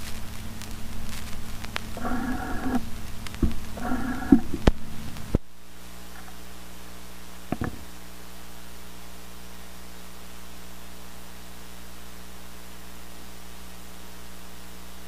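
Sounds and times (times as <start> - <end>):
stylus ticking in run-out groove: 0.0 - 5.4
mains hum and hiss: 0.0 - 15.0.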